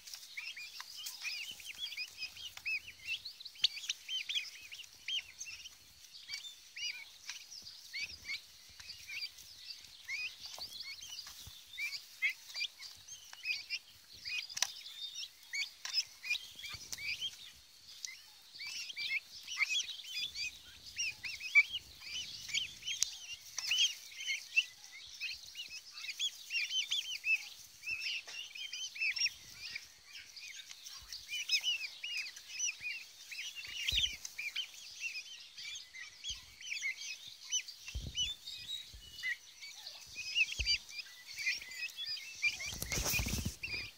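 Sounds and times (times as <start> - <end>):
turkey poults peeping: 0.0 - 43.9.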